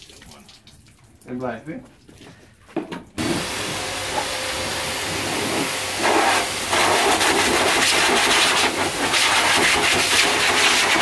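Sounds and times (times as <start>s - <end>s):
hissing water jet: 3.2s - 11.0s.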